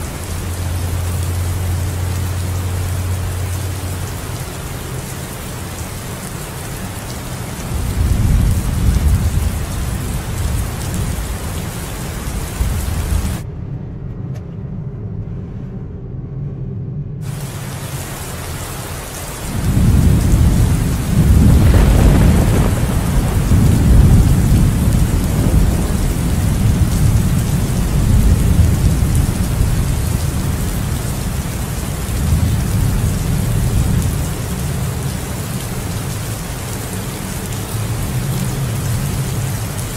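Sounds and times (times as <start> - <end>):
steady rain: 0.0 - 13.4, 17.2 - 39.9
rolling thunder: 7.4 - 13.4, 17.2 - 36.8.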